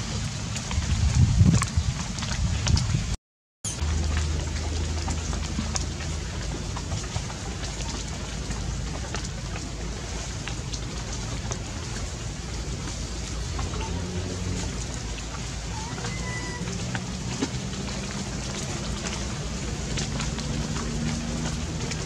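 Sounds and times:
steady rain falling: 0.0s - 22.0s
low steady rumble: 3.7s - 22.0s
single raindrops ticking: 3.7s - 22.0s.

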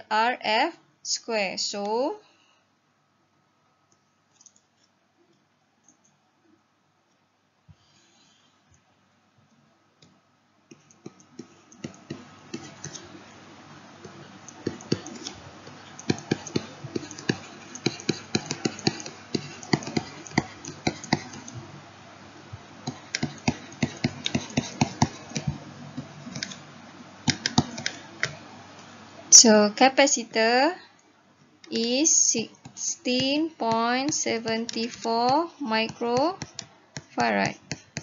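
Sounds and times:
keys clicking and tapping: 10.7s - 13.1s, 14.0s - 21.6s, 22.8s - 26.6s, 27.2s - 28.4s.

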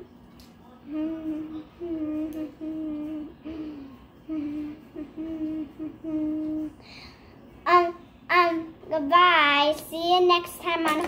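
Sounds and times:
child humming a tune: 0.9s - 6.8s.

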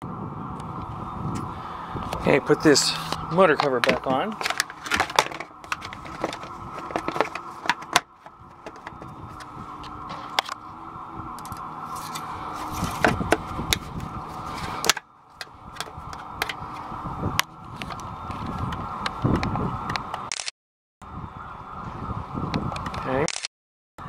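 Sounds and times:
plastic engine cover rattling: 3.6s - 10.6s, 14.6s - 16.6s
camera handling noise: 3.8s - 10.6s.

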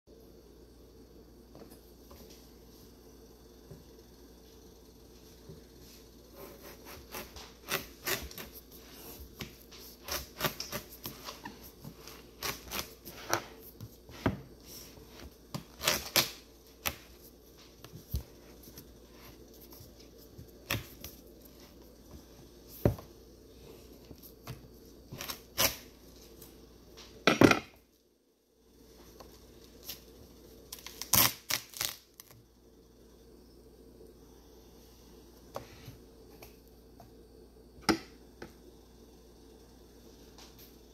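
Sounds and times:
knife cracking watermelon rind: 30.8s - 32.4s.

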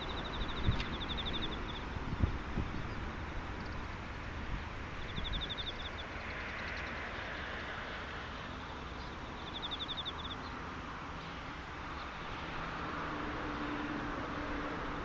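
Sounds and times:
insects chirping: 0.0s - 12.9s
background hiss and rumble: 0.0s - 15.0s.

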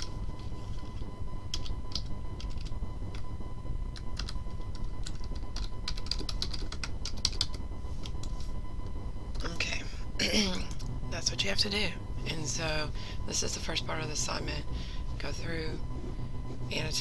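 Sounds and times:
typing on computer keyboard: 1.5s - 2.7s, 4.2s - 7.6s.

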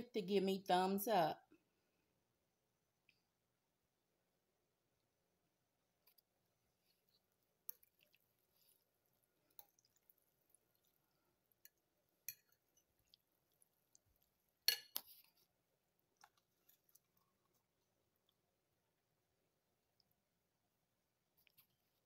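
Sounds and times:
metal fork clinking on plate: 11.6s - 12.6s, 14.7s - 15.1s.

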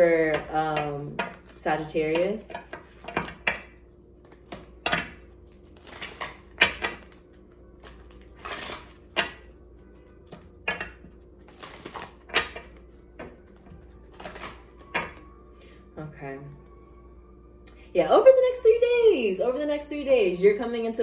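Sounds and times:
cards being shuffled: 2.5s - 4.9s, 5.5s - 15.2s.

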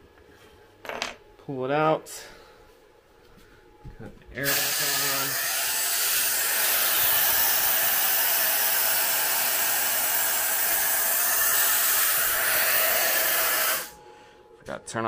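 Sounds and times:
compressed air hissing: 4.4s - 14.0s.

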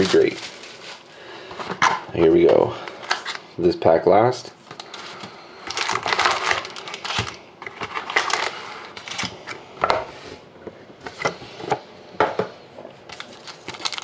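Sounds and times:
foil wrappers crinkling: 0.0s - 1.3s, 4.6s - 9.4s, 13.1s - 14.0s.

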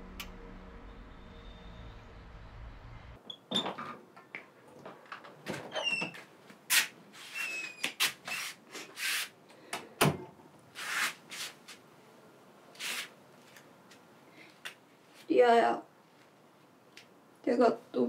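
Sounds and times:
door squeaks: 3.2s - 4.0s, 5.6s - 6.2s, 7.3s - 8.5s.

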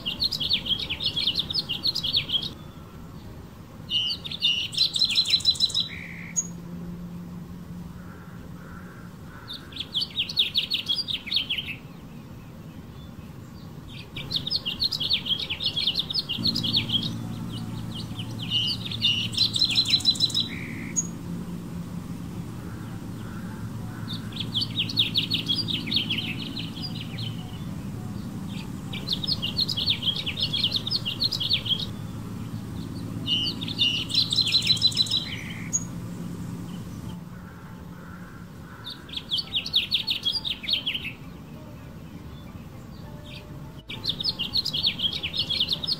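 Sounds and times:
low droning hum: 0.0s - 10.0s, 12.8s - 39.6s
finch singing: 0.0s - 45.9s.

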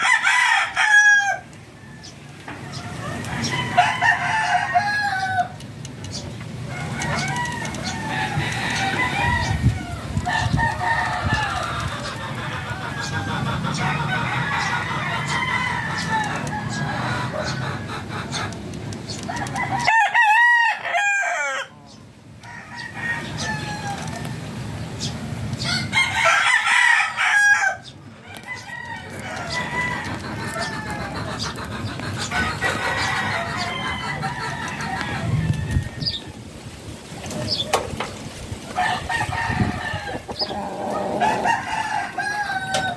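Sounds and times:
rooster crowing: 0.0s - 2.1s, 2.7s - 5.6s, 6.7s - 17.4s, 19.3s - 21.8s, 22.4s - 24.4s, 25.6s - 31.2s, 32.3s - 36.4s, 38.7s - 42.9s
fowl clucking: 10.4s - 18.6s, 28.5s - 35.4s, 38.8s - 42.9s.

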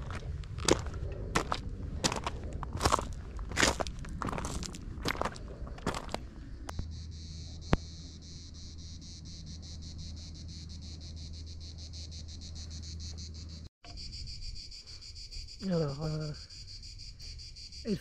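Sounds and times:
cicadas singing: 4.4s - 18.0s.

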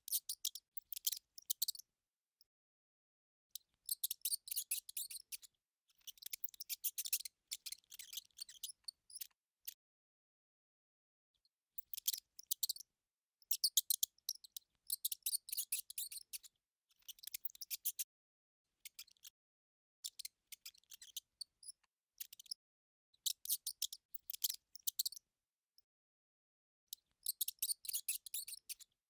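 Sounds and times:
mouse squeaking and scratching: 0.0s - 1.9s, 3.6s - 9.8s, 11.8s - 18.1s, 18.7s - 19.4s, 20.0s - 22.6s, 23.2s - 25.2s, 26.9s - 29.0s.

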